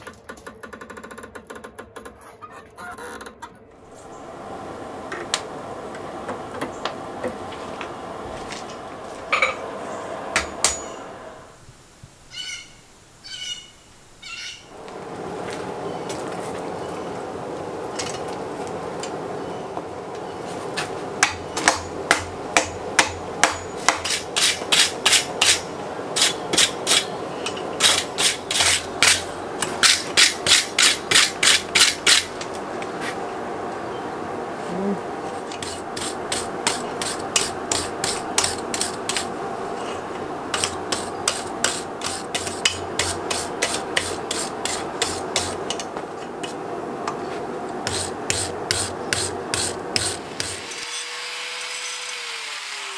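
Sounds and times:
wire brush scrubbing iron: 21.2 - 32.4, 35.4 - 46.7, 47.8 - 52.9.

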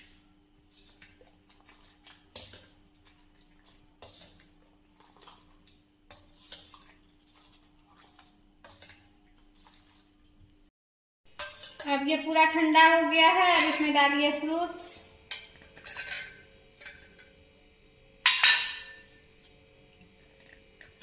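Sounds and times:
faint steady hum: 11.4 - 21.0.

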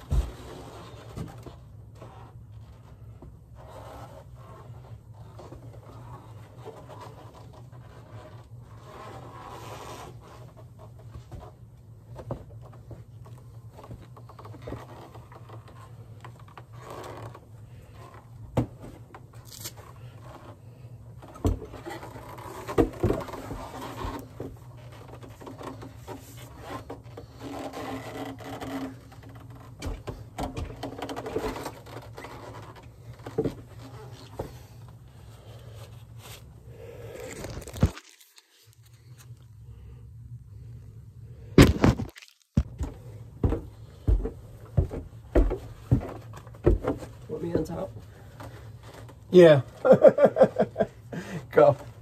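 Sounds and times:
objects scraping and rubbing: 0.0 - 11.7
steady low hum: 0.0 - 52.0
knocks of objects handled: 41.6 - 47.2.

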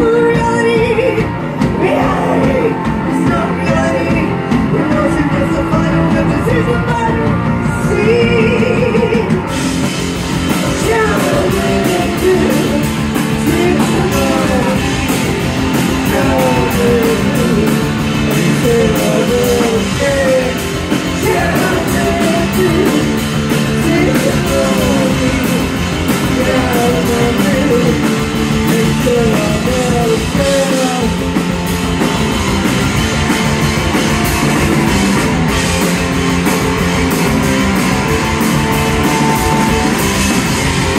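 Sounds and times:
person singing into a microphone: 0.0 - 9.5, 10.6 - 31.2
bass guitar: 0.0 - 40.9
drum kit: 0.0 - 40.9
electric guitars: 0.0 - 40.9.

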